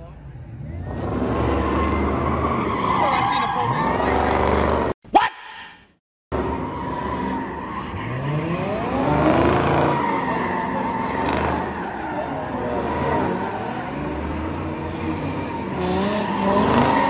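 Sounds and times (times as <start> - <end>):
tire squeal: 0.5 - 4.9, 6.4 - 17.0
car engine revving: 6.3 - 17.0.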